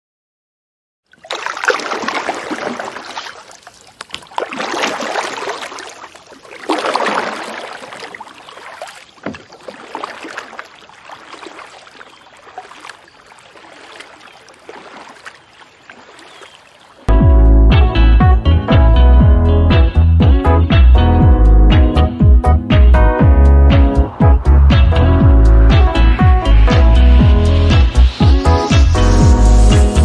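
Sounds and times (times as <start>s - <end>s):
water lapping and dripping: 1.0s - 17.1s
kayak paddles splashing: 1.1s - 17.2s.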